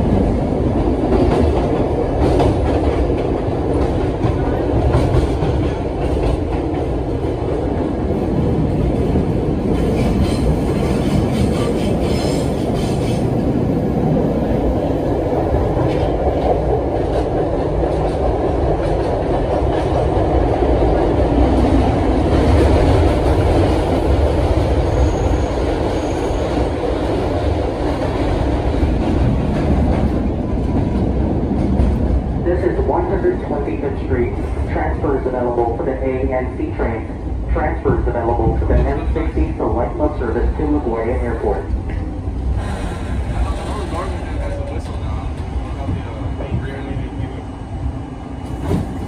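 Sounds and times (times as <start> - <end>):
subway car wheels rumbling: 0.0 - 49.0.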